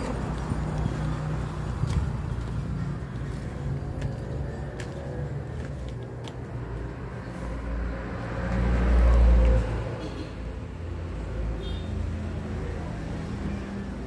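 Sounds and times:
flip-flop footsteps slapping: 1.6s - 6.6s.

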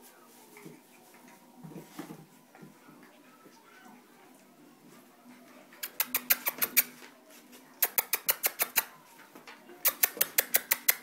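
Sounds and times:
dog claws clicking on tiles: 7.8s - 8.9s, 9.9s - 11.0s.

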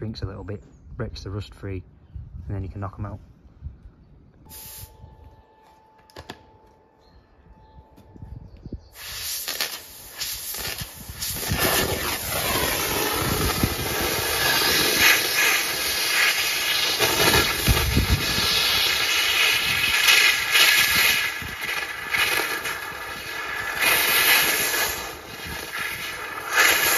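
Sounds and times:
thermal lance hissing and crackling: 4.5s - 5.0s, 8.9s - 26.9s.

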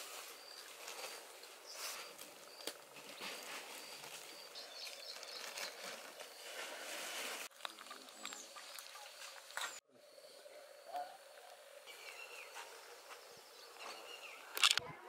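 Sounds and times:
steady rustling hiss: 0.0s - 8.2s
high bird chirps: 11.8s - 14.6s
sharp clicks: 14.5s - 14.8s.

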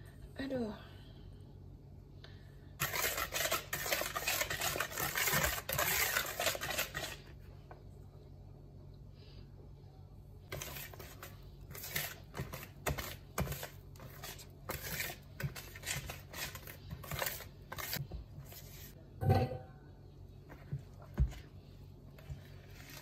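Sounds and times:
utensil scraping in mixing bowl: 2.8s - 7.4s, 10.5s - 19.0s, 22.2s - 23.0s.

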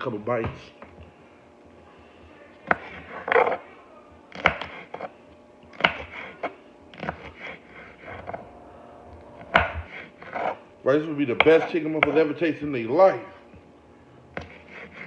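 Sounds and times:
knife chopping on cutting board: 2.6s - 3.6s, 4.3s - 5.1s, 5.7s - 8.4s, 9.4s - 10.6s, 11.3s - 12.3s, 14.3s - 15.0s.

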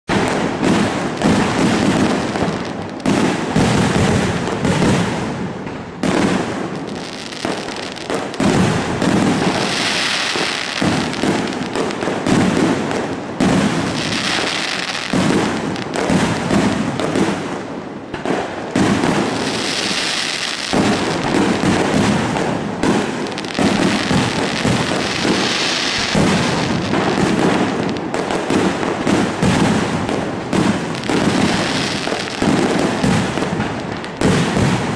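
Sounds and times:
firework crackling hiss: 0.1s - 34.9s.

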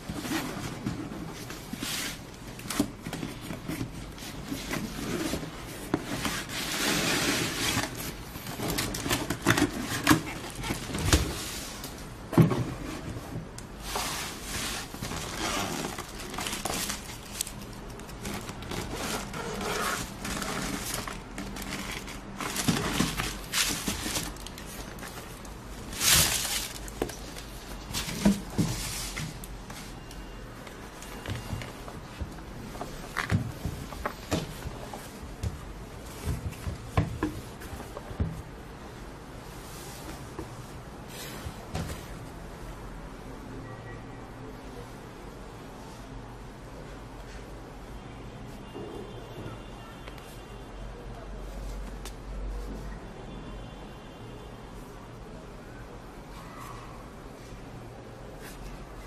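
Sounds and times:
packing paper rustling and crinkling: 0.1s - 11.8s, 13.8s - 30.1s.

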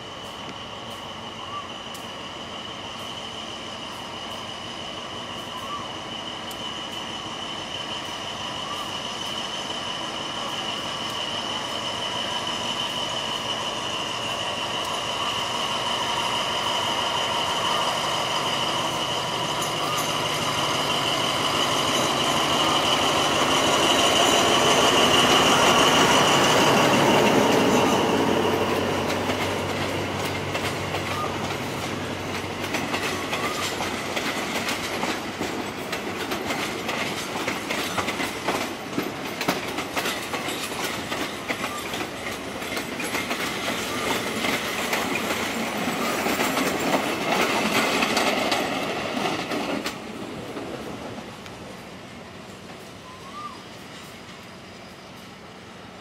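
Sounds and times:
diesel locomotive engine: 0.0s - 56.0s
train wheel squeal: 0.0s - 56.0s
wheels clacking over rail joints: 18.5s - 51.6s.

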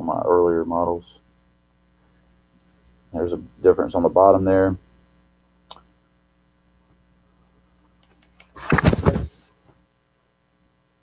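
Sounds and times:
faint electrical hum: 0.0s - 11.0s
shoes rustling scrape: 8.6s - 9.4s.

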